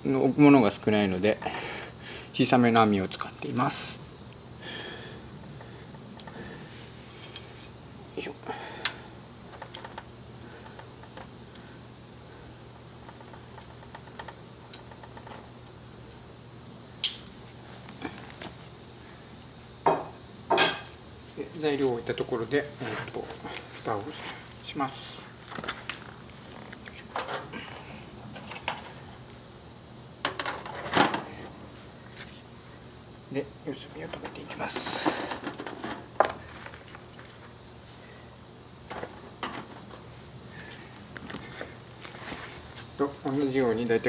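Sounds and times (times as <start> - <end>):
foil pan crinkling and rattling: 34.2 - 36.1.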